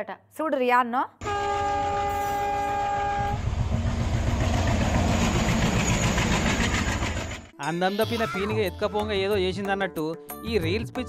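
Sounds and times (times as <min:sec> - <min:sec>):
locomotive horn blast: 0:01.2 - 0:03.7
train rumbling on track: 0:01.2 - 0:07.5.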